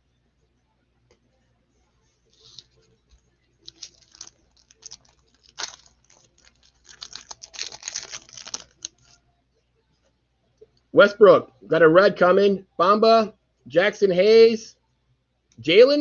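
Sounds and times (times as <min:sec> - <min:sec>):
wrapper tearing and crinkling: 0:03.6 - 0:09.2.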